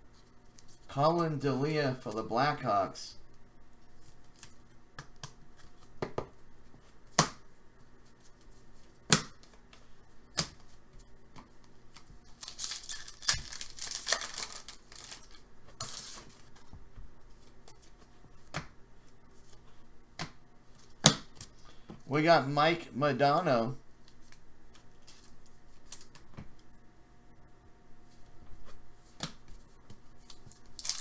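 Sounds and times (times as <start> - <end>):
foil wrapper crackling and tearing: 12.2 - 16.2, 30.2 - 31.0.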